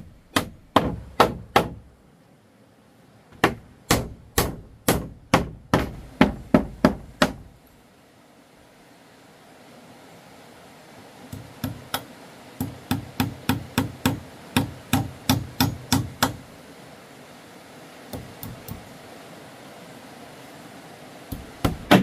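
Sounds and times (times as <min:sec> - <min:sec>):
hammering blows: 0:00.0 - 0:01.9, 0:03.3 - 0:07.5, 0:11.3 - 0:16.4, 0:21.3 - 0:22.0.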